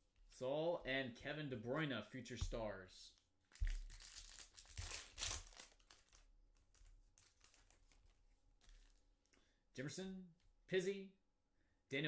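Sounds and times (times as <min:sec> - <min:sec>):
foil wrapper tearing and crinkling: 0:03.6 - 0:06.2.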